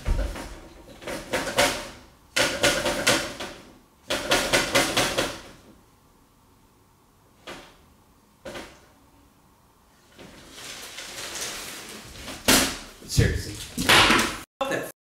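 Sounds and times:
rattling and knocking on glass doors: 0.0 - 5.7.

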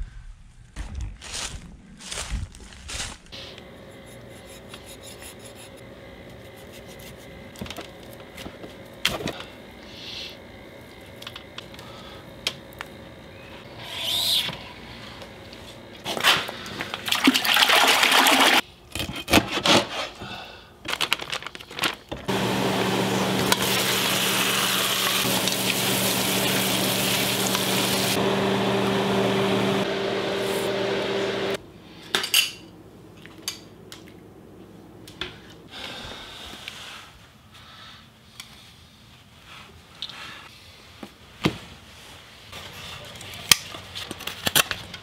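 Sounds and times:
meat sizzling in a pot: 22.4 - 28.2.

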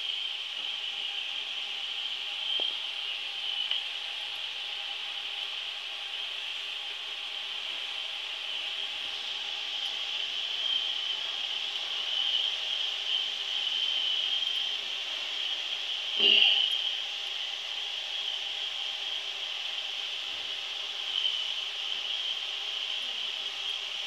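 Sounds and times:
dough sizzling in hot oil: 0.0 - 24.0.

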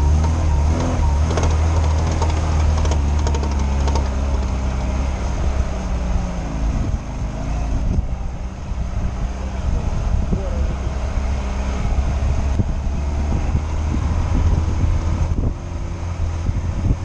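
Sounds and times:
car engine droning under load: 0.0 - 17.0
sharp ticks: 0.2 - 4.9.

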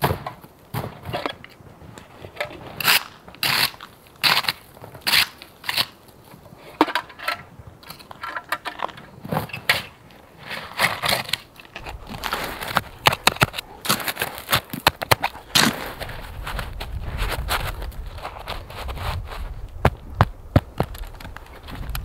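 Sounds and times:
dry snow crunching: 9.1 - 22.0.

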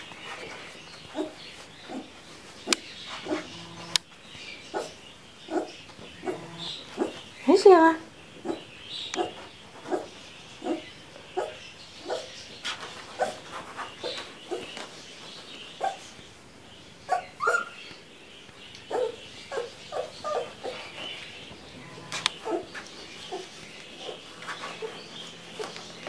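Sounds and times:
puppies squeaking and whimpering: 2.7 - 4.0, 4.7 - 7.3, 13.1 - 14.8, 17.1 - 17.8, 18.9 - 25.9.

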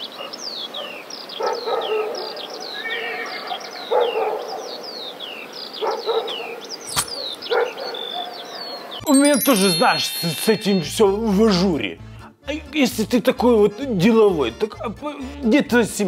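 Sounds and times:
birds chirping: 0.0 - 11.1
dog barking: 0.2 - 2.4, 3.9 - 4.8, 5.8 - 9.0
sharp click: 6.9 - 7.4.

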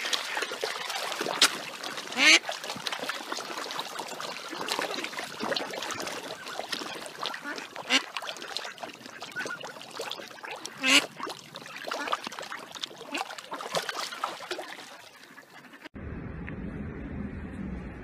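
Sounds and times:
fish splashing in water: 0.0 - 15.8
ducks calling: 2.0 - 2.5, 4.1 - 15.9
low steady hum: 16.0 - 18.0.

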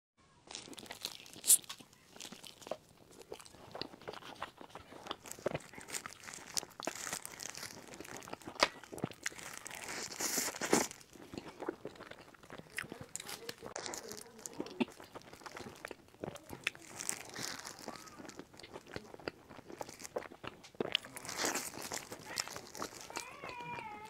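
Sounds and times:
sticky wet chewing: 0.5 - 24.0.

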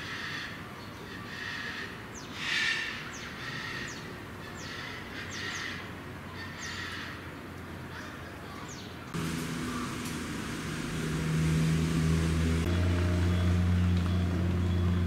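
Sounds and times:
rustling foliage: 0.0 - 15.0.

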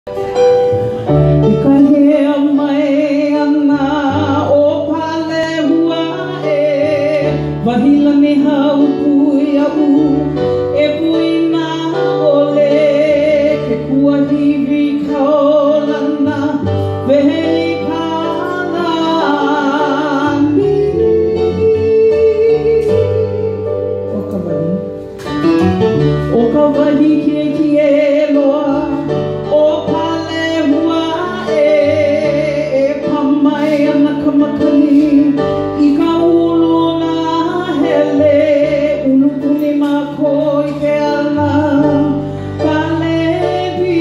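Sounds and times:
instrumental accompaniment: 0.0 - 44.0
woman singing with vibrato: 1.4 - 25.0, 26.3 - 44.0.

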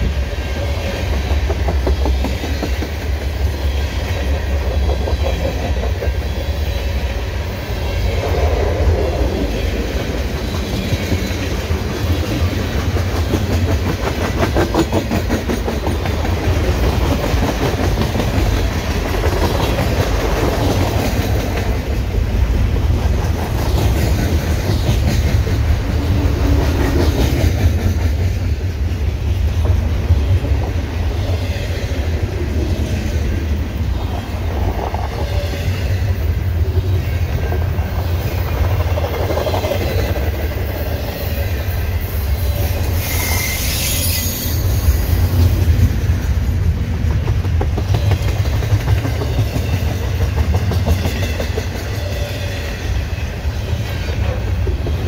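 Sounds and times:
freight train rumbling: 0.0 - 55.0
wheels clacking over rail joints: 45.4 - 52.3.

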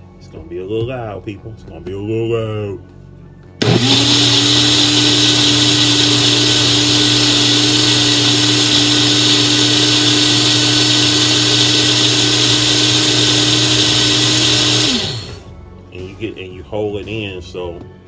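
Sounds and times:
blender motor whining: 3.6 - 15.6.

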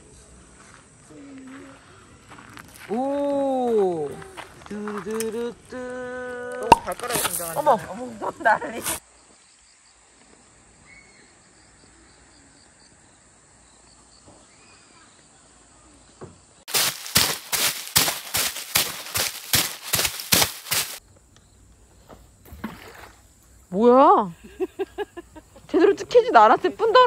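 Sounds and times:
faint chirps: 10.8 - 16.2.

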